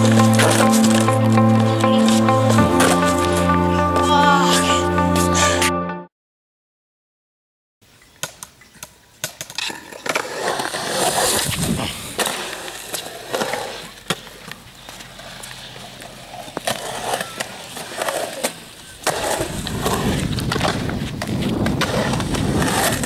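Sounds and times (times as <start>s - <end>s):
skateboard wheels rumbling: 0.0s - 3.4s, 9.2s - 23.0s
skateboard clacks: 8.2s - 23.0s.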